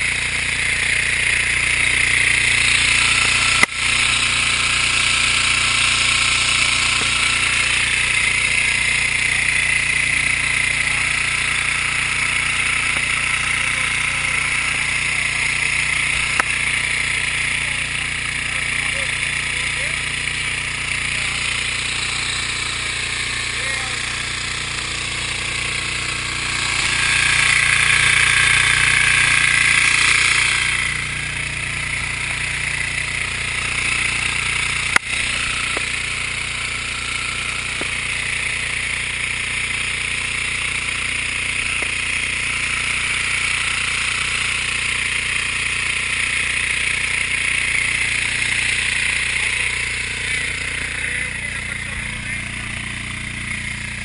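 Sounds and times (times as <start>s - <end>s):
engine running: 0.0s - 54.0s
sharp click: 16.3s - 16.6s.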